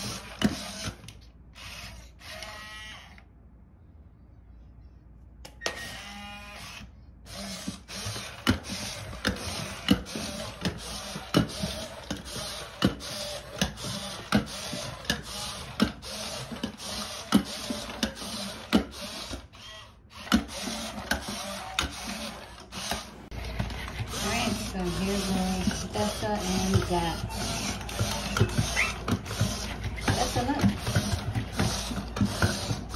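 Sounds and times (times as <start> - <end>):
robot leg motors whirring: 0.0 - 3.2, 5.6 - 32.9
plastic feet tapping on wood: 23.4 - 32.9.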